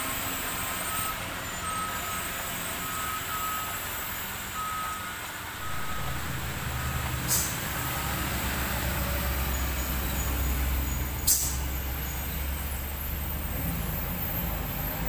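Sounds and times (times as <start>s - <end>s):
truck engine passing: 0.0s - 15.0s
air-brake hisses: 7.2s - 7.8s, 11.1s - 12.2s.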